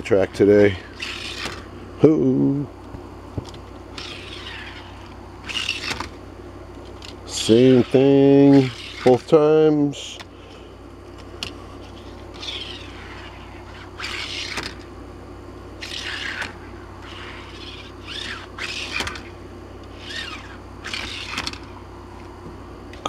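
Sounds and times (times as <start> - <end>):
faint steady hum: 0.0 - 23.0
bird giving harsh calls: 12.3 - 14.6.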